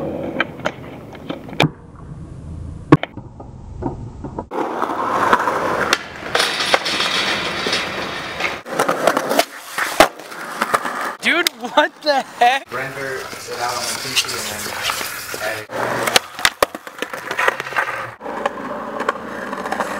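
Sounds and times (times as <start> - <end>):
skateboard wheels rolling: 0.0 - 2.2, 2.9 - 19.9
skateboard clacks: 4.4 - 11.8, 14.2 - 19.9.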